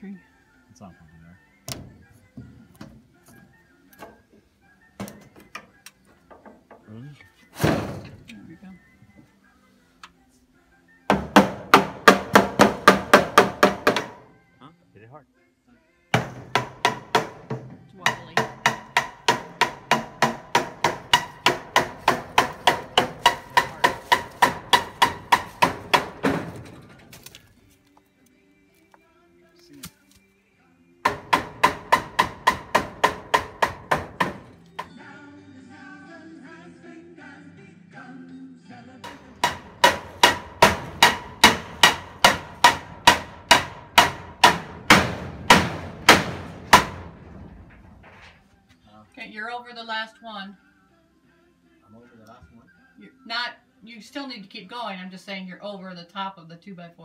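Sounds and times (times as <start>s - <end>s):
hammer nailing wood: 11.1s - 14.3s, 16.2s - 26.8s, 31.0s - 34.9s, 39.0s - 47.4s.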